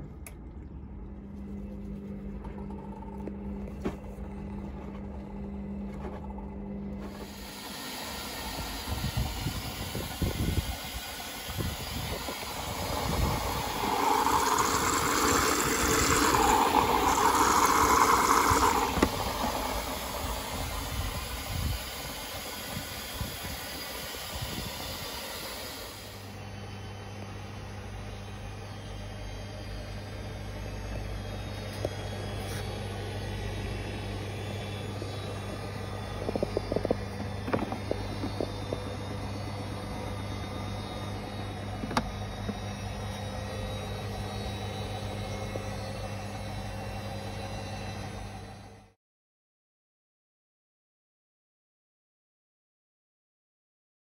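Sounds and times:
washing machine motor hum: 0.0s - 48.9s
water rushing into washing machine: 2.2s - 26.3s, 34.2s - 42.9s.

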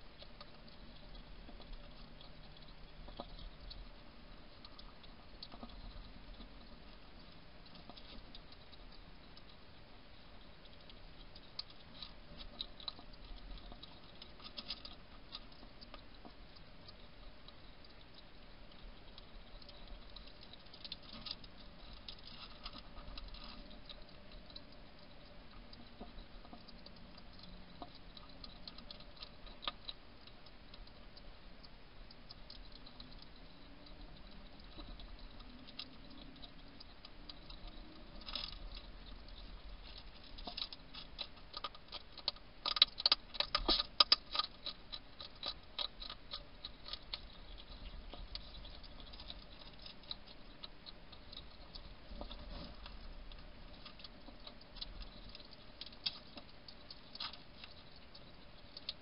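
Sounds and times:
hedgehog crunching dry food: 0.0s - 59.0s.

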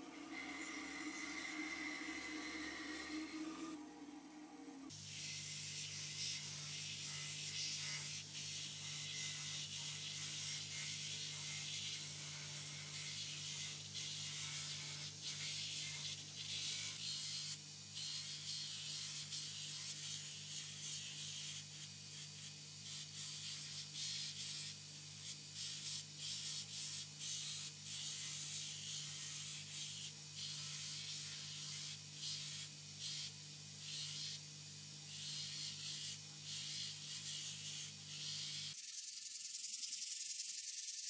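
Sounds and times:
wood sanding hiss: 0.0s - 3.8s
belt grinder motor hum: 0.0s - 4.9s.

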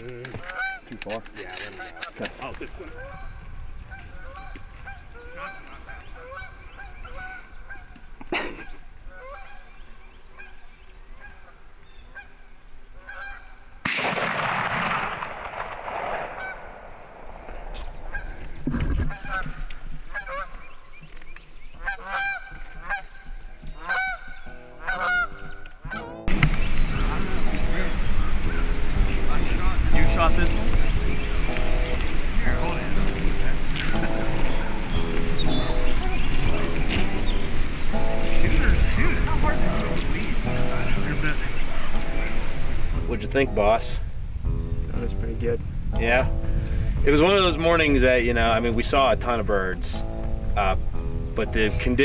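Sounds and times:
geese honking: 0.3s - 44.0s.

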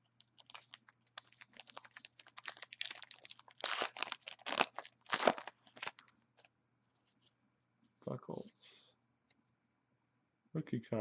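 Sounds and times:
paper wrapper crinkling and tearing: 0.2s - 6.5s.

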